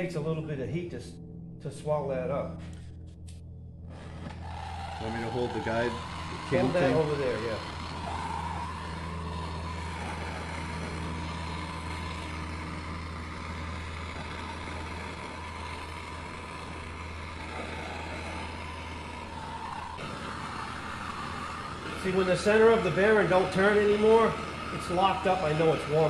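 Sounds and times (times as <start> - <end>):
gas torch burning: 2.5 - 26.0.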